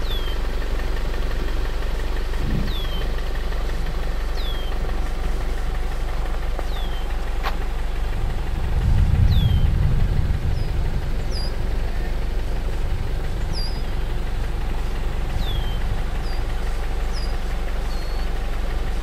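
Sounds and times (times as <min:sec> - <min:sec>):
bird whistles: 0:00.0 - 0:00.4, 0:02.6 - 0:03.2, 0:04.4 - 0:04.8, 0:06.7 - 0:07.2, 0:09.3 - 0:09.7, 0:13.5 - 0:14.1, 0:15.4 - 0:16.5, 0:17.1 - 0:18.3
bird chirps: 0:00.0 - 0:00.5, 0:02.2 - 0:05.0, 0:06.6 - 0:07.2, 0:09.1 - 0:11.7, 0:13.2 - 0:14.3, 0:15.2 - 0:18.4
steady low rumble: 0:00.0 - 0:19.0.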